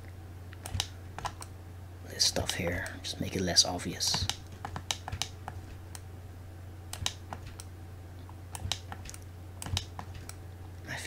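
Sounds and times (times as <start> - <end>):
low steady hum: 0.0 - 11.0
keyboard and mouse clicks: 0.5 - 1.5, 4.1 - 6.0, 6.9 - 10.4.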